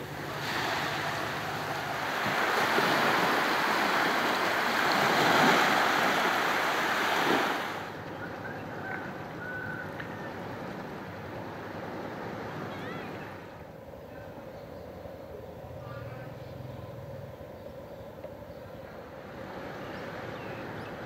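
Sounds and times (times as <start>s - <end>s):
small waves washing on shore: 0.0s - 13.8s.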